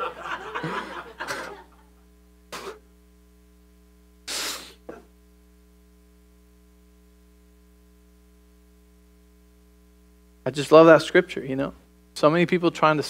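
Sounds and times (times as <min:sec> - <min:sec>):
man laughing quietly: 0:00.0 - 0:01.9
mains hum: 0:00.0 - 0:13.0.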